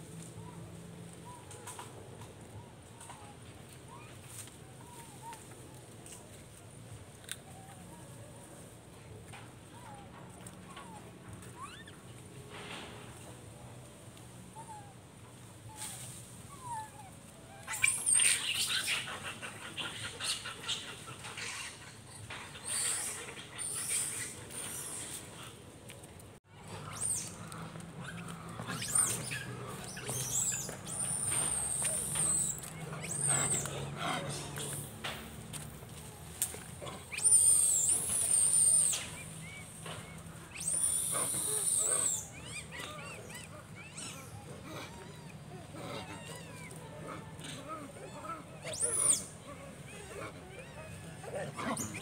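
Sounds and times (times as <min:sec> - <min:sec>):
monkeys screaming: 0:10.7 - 0:12.0, 0:15.7 - 0:25.5, 0:26.6 - 0:52.0
monkeys chirping: 0:11.6 - 0:12.0, 0:16.6 - 0:25.5, 0:26.6 - 0:52.0.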